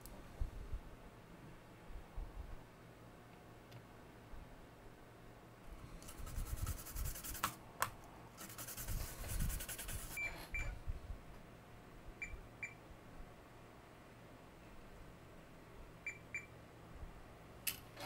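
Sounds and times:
toothbrush scrubbing circuit board: 6.1s - 7.5s, 8.4s - 10.2s.

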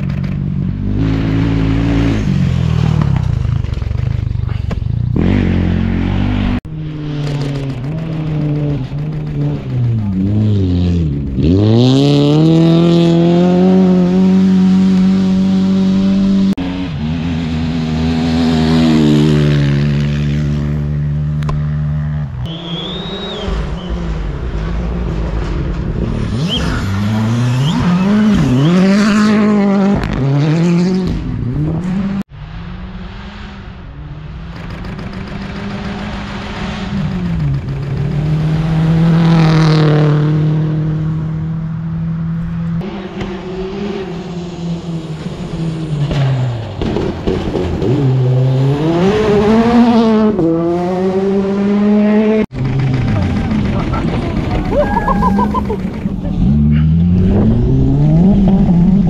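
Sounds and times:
rally car engines at full throttle: 0.0s - 59.0s.

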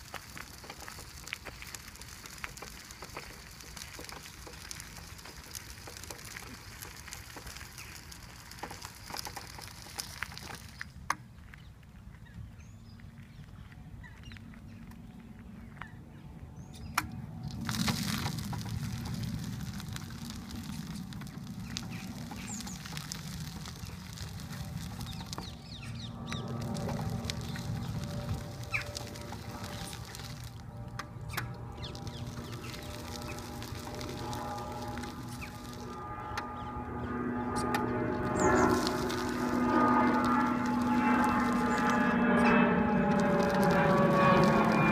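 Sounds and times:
footsteps on gravel: 0.0s - 16.5s, 17.4s - 36.8s, 37.4s - 44.9s
wheelchair tyres crunching gravel: 0.0s - 44.9s
bird chirps: 38.3s - 38.9s.

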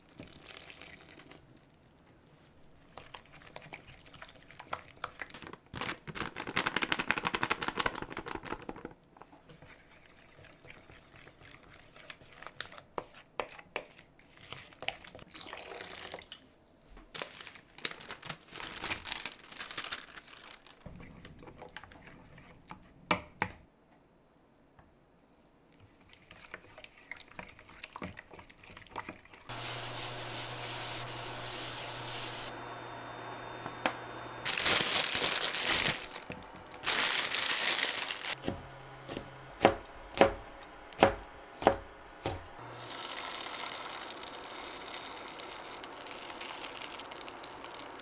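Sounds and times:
spoon stirring batter: 9.2s - 15.3s, 20.8s - 23.0s, 25.8s - 32.5s.

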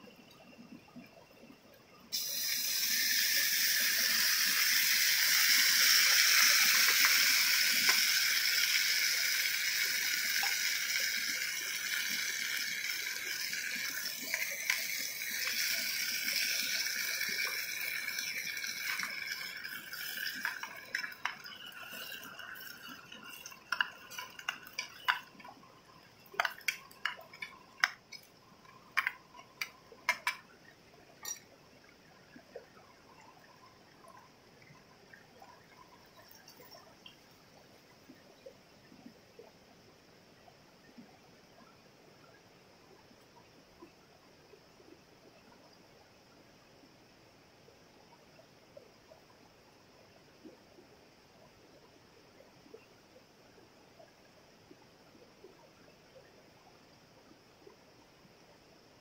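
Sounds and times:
food sizzling in hot oil: 2.1s - 30.5s, 31.2s - 31.4s.

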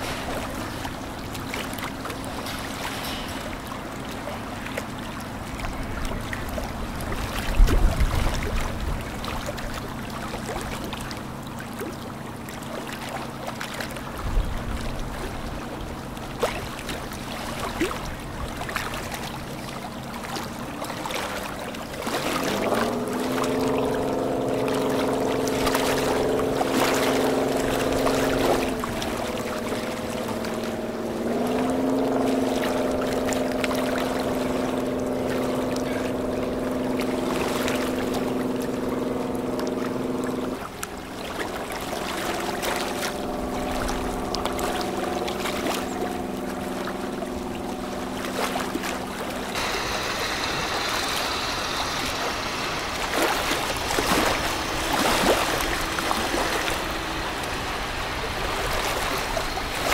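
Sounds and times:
boat diesel engines humming: 0.0s - 59.9s
river water washing: 0.0s - 59.9s
hiss: 49.6s - 59.9s.

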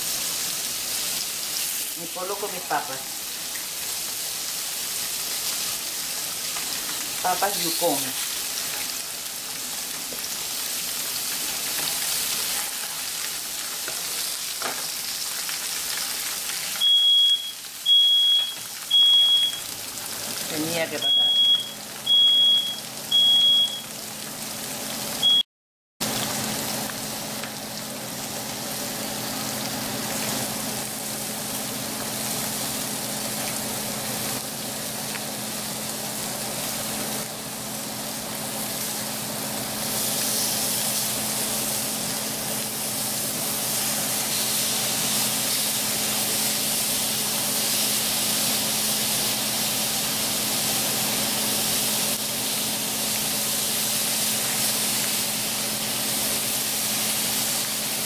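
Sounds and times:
hot oil sizzling: 0.0s - 25.4s, 26.0s - 58.0s.

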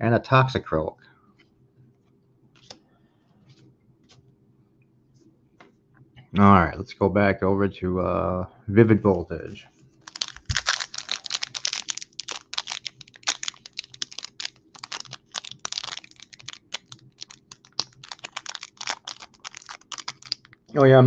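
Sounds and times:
foil wrapper crinkling: 10.0s - 20.7s.

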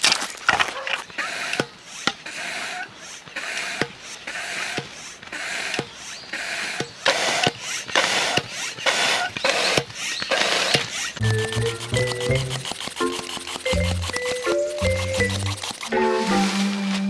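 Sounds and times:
hand pump air whooshing: 1.1s - 16.8s.

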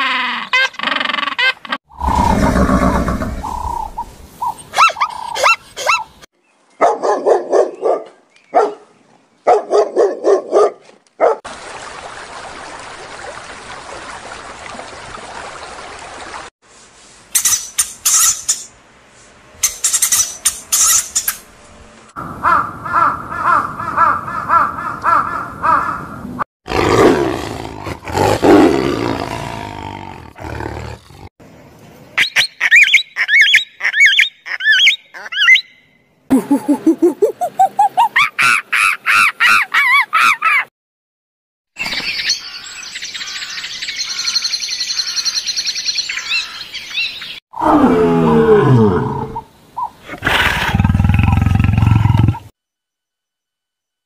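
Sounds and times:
tiger roaring and growling: 1.9s - 3.8s, 26.7s - 31.3s, 47.6s - 49.4s, 50.1s - 52.5s
sharp high animal calls: 1.9s - 6.1s.

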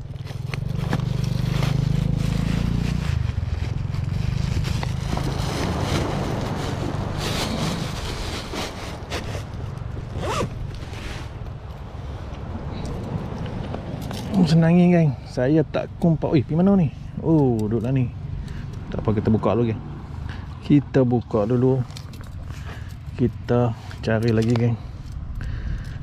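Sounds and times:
motorcycle engine passing: 0.0s - 11.4s
scraping near microphone: 0.1s - 11.6s.

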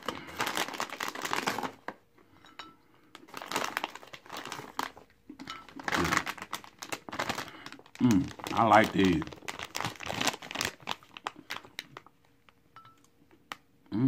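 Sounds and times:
plastic snack bag crinkling: 0.0s - 2.0s, 3.1s - 12.5s.

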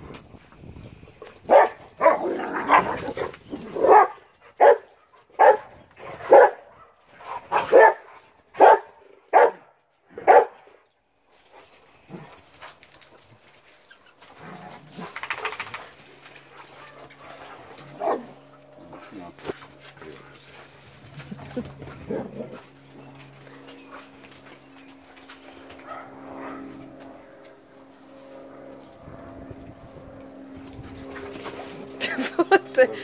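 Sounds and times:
dogs barking: 1.5s - 10.7s, 16.4s - 19.0s, 25.8s - 27.0s.

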